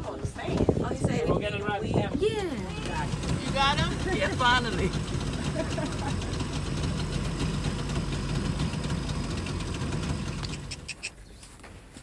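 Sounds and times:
motor engine humming: 2.3s - 11.1s.

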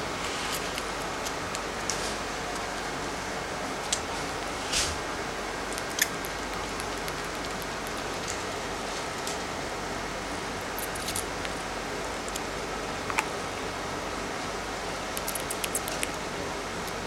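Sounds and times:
kitten suckling wet clicks: 15.2s - 16.2s.

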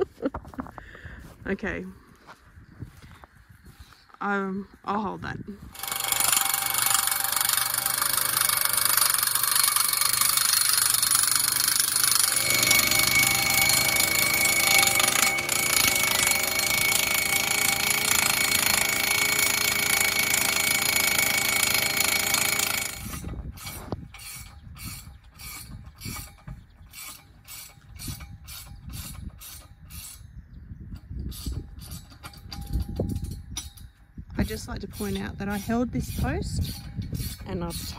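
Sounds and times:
sharp regular clicks: 5.7s - 23.4s
post driver hammering: 5.7s - 30.2s.

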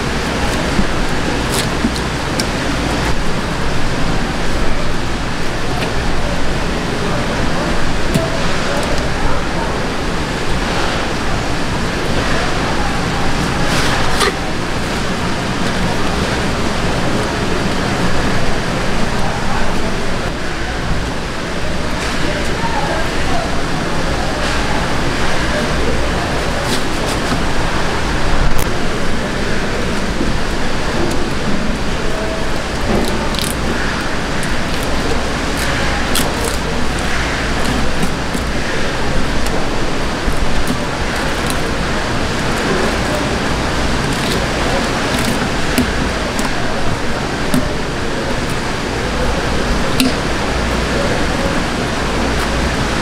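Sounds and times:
paper towel rustling: 0.0s - 18.7s, 24.5s - 53.0s
fish market background hiss and rumble: 0.0s - 53.0s
steady rushing background noise: 0.0s - 53.0s
knife clicking and scraping fish: 0.3s - 3.1s, 13.7s - 14.5s, 32.8s - 38.6s, 40.2s - 46.6s.

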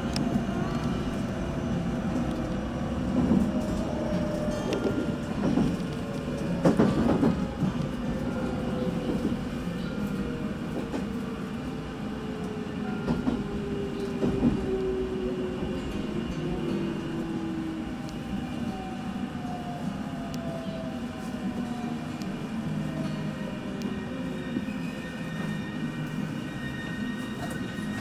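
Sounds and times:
train rumbling: 0.0s - 28.0s.

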